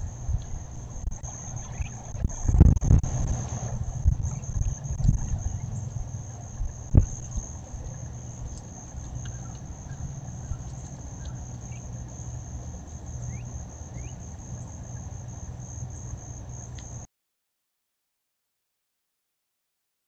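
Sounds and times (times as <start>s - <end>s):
high-pitched insect trill: 0.0s - 17.1s
low steady rumble: 0.0s - 17.1s
rising bird chirps: 1.4s - 2.2s.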